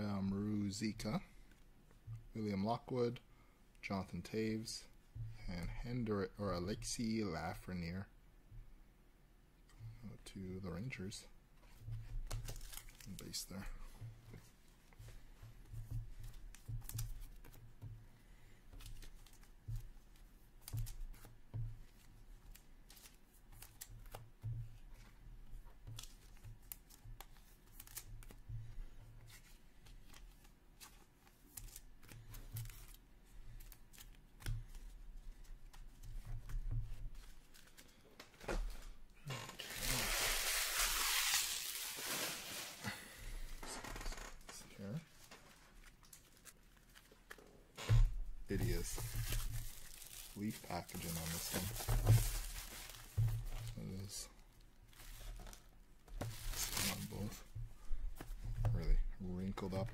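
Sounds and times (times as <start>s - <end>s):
packaging rustling: 39.5s - 43.6s, 48.5s - 54.2s, 54.9s - 57.4s.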